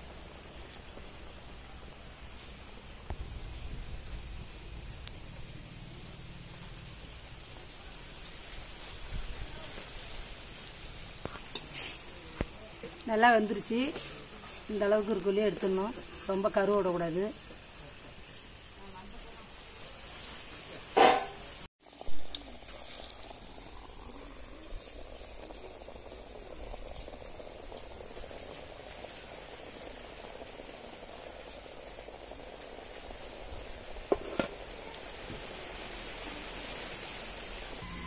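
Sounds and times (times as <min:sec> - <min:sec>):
hot oil bubbling and sizzling: 0:00.0 - 0:38.0
sharp knocks: 0:21.0 - 0:21.4.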